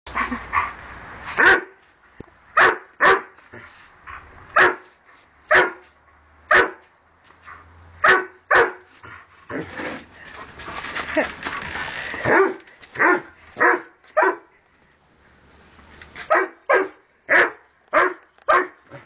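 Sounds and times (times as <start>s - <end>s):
dog barking: 1.4s - 1.8s, 2.6s - 3.3s, 4.6s - 4.9s, 5.5s - 5.9s, 6.5s - 6.8s, 8.0s - 8.9s, 12.3s - 14.5s, 16.3s - 18.8s.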